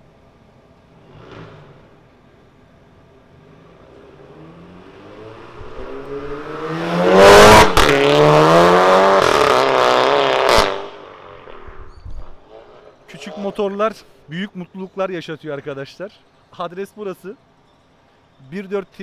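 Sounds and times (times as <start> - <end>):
car accelerating past: 1.0 - 2.0, 3.3 - 13.1
exhaust crack: 5.3 - 13.4.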